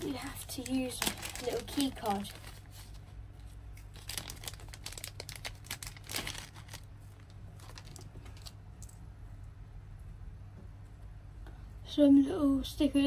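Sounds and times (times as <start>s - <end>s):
plastic bag and bubble wrap crinkling: 0.0s - 8.8s.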